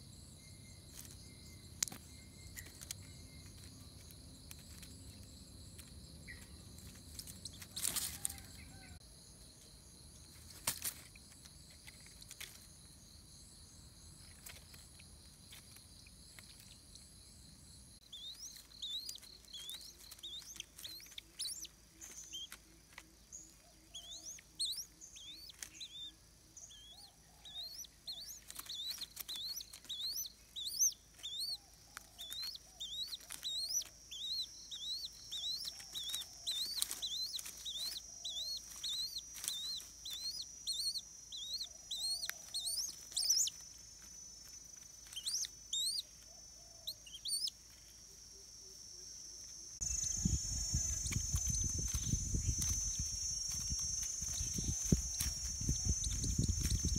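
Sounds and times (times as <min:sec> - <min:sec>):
bird chirping: 0:00.0 - 0:56.9.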